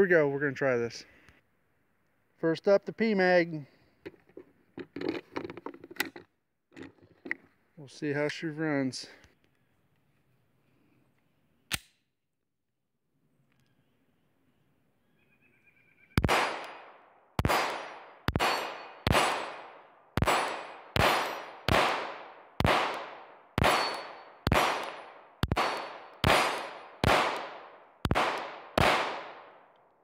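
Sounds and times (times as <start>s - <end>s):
pistol shots: 16.2s - 29.7s.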